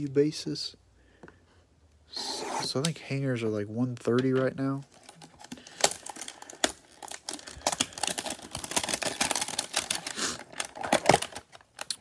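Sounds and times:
plastic wrap crinkling and tearing: 4.8s - 12.0s.

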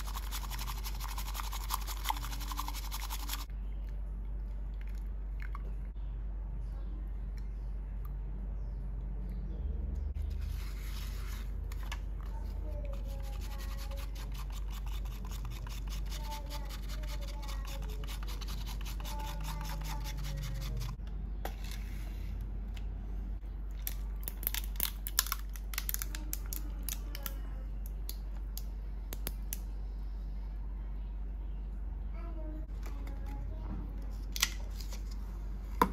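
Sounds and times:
bamboo whisk scraping in bowl: 12.9s - 21.0s.

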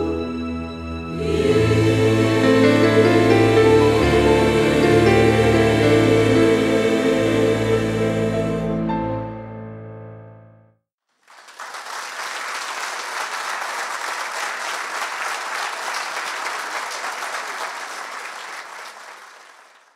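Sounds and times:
audience applause: 11.2s - 19.9s.

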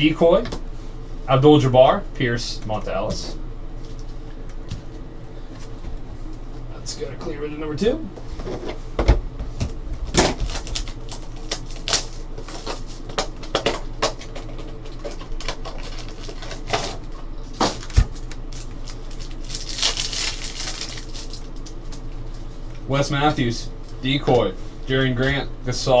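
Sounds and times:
wrapper rustling: 10.4s - 22.2s.

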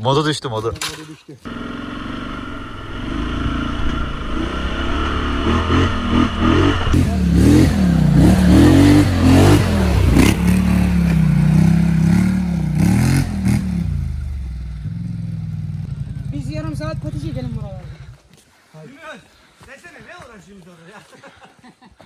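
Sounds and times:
atv engine revving: 1.5s - 18.2s.

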